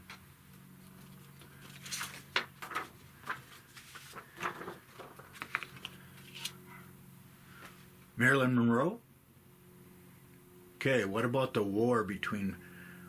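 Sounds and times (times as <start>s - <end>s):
paper rustling: 0.8s - 6.6s.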